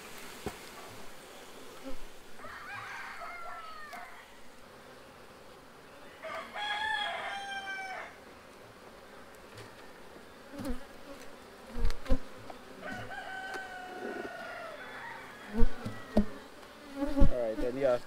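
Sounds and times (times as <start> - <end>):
honeybees buzzing: 0.0 - 18.0
rooster crowing: 2.4 - 4.4, 6.1 - 8.2, 12.8 - 16.5
hive tool knocking on wooden frames: 15.5 - 16.4, 17.0 - 17.8.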